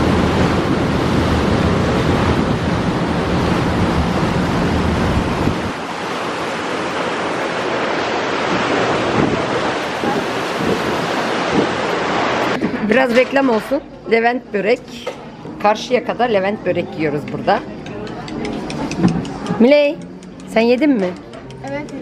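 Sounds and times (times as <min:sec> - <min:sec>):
wind on microphone: 0:00.0 - 0:12.9
rushing sea water: 0:00.0 - 0:13.8.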